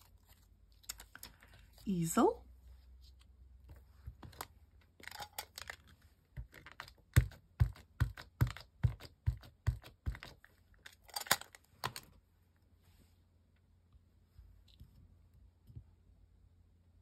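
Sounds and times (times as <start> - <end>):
rubber stamps rustling and scraping: 2.9 - 12.2.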